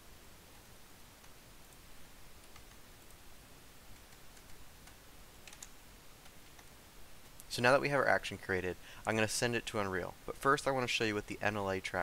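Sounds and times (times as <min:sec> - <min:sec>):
room hiss: 0:00.0 - 0:12.0
mouse and keyboard clicks: 0:02.4 - 0:03.2, 0:03.9 - 0:06.7.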